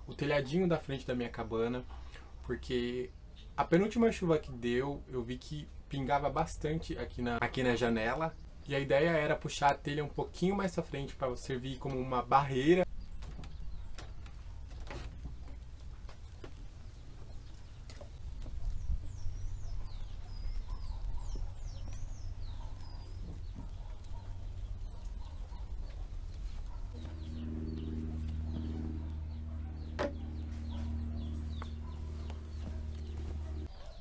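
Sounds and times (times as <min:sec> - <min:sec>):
low steady hum: 0:05.0 - 0:33.7
small bird chirping: 0:12.8 - 0:34.0.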